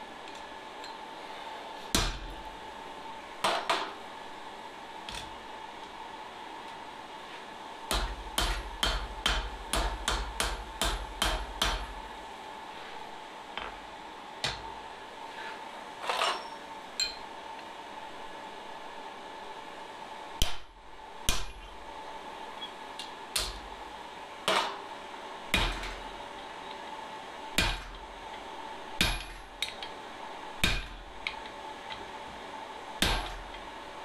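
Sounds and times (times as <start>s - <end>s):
hammer striking steel on anvil: 7.9s - 11.9s, 25.5s - 26.0s, 27.6s - 28.0s, 29.0s - 29.8s, 30.6s - 31.0s, 33.0s - 33.5s.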